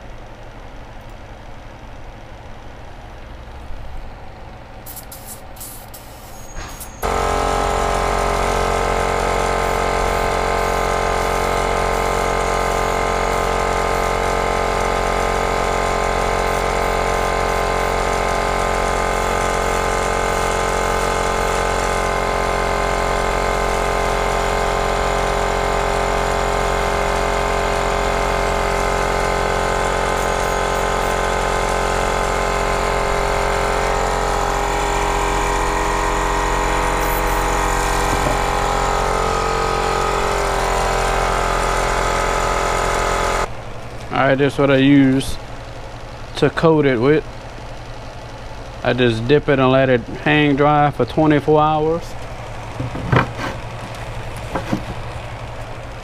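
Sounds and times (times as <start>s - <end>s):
air compressor motor hum: 0.0s - 56.0s.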